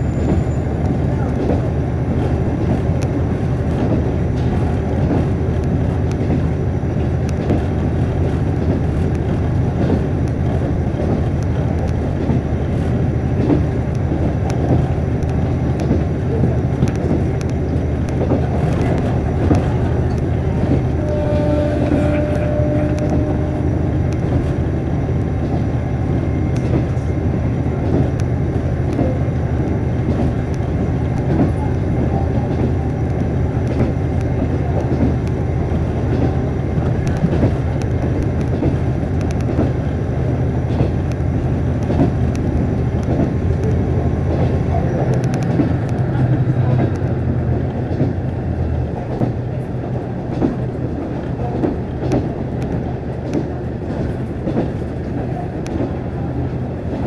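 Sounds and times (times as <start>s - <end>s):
diesel engine drone: 10.4s - 28.8s.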